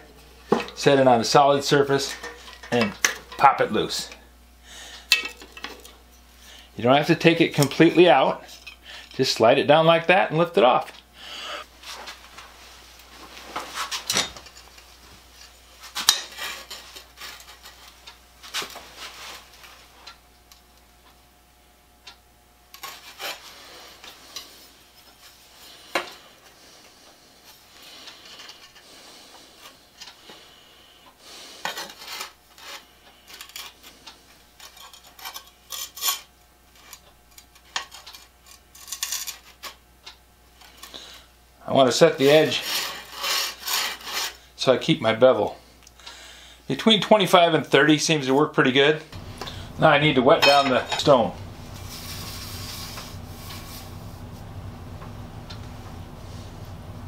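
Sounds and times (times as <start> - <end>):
metal tools scraping: 0.4 - 4.1, 7.2 - 9.2, 15.4 - 18.0, 22.8 - 24.6, 34.6 - 39.8, 42.2 - 44.4, 49.2 - 53.9.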